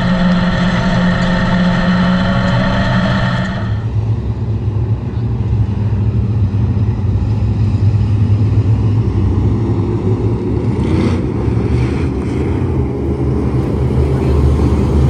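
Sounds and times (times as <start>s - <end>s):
race car engine revving: 0.0s - 3.9s.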